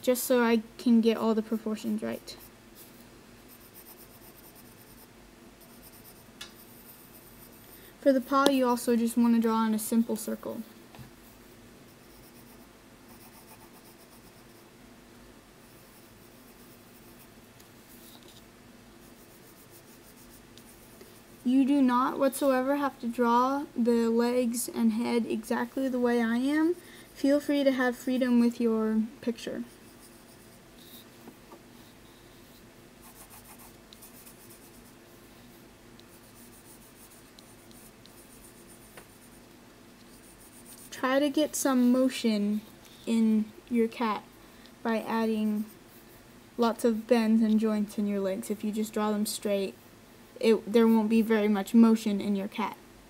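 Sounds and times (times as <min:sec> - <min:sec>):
pencil scratching on paper: 0:01.4 - 0:07.8, 0:11.3 - 0:14.6, 0:15.6 - 0:18.4, 0:19.0 - 0:21.7, 0:29.6 - 0:31.1, 0:31.7 - 0:39.4, 0:40.1 - 0:42.0.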